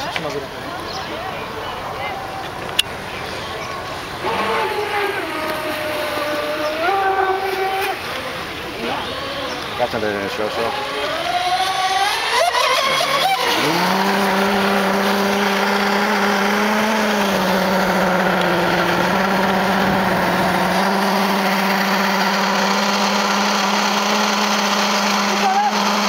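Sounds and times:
boat engine high-pitched whine: 0.0s - 26.0s.

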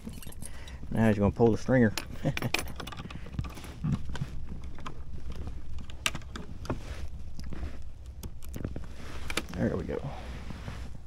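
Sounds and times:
metal clips clinking: 0.0s - 0.8s.

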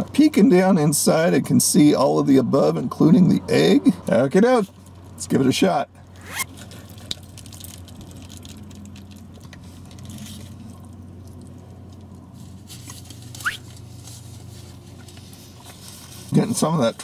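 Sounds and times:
rising squeak: 6.2s - 6.6s.

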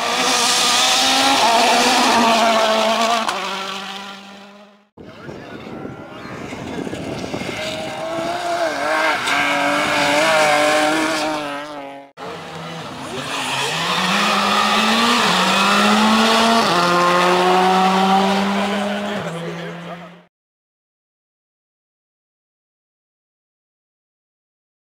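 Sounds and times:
rally car engine revving: 0.0s - 4.9s, 5.8s - 20.3s
turbo car accelerating past: 7.0s - 20.2s.

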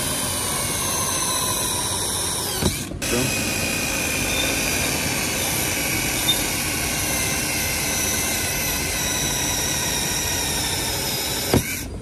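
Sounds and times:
cordless drill whining: 0.0s - 12.0s.

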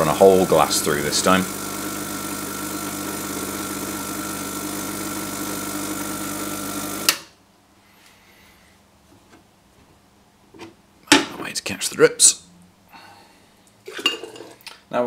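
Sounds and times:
espresso machine pump buzzing: 0.0s - 7.2s.

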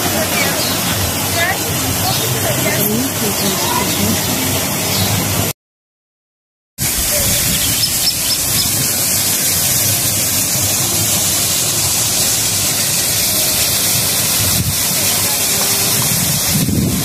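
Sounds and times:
loud rushing hiss: 6.8s - 17.0s.

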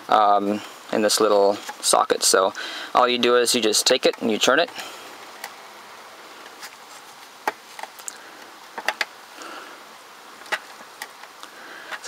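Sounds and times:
faint handling noise: 0.6s - 2.6s, 6.4s - 9.1s.

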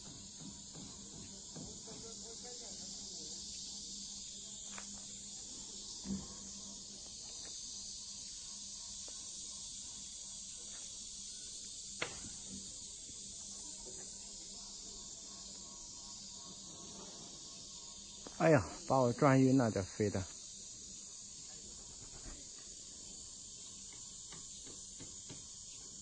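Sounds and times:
insects chorus: 0.0s - 26.0s.

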